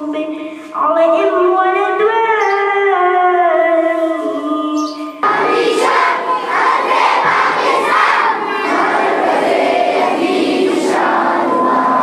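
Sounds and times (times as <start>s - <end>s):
boy singing into microphone: 0.0s - 5.2s
boys shouting a chant: 5.2s - 12.0s.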